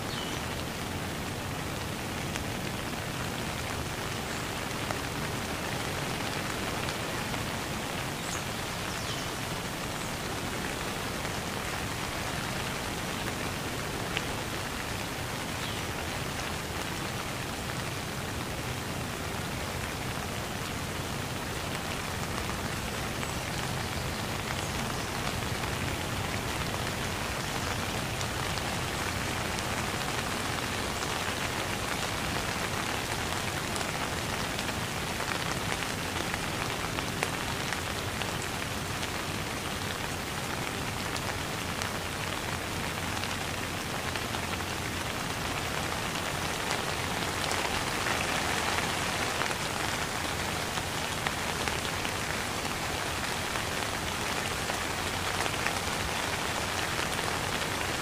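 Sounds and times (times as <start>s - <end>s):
steady rain on wet ground: 0.0s - 58.0s.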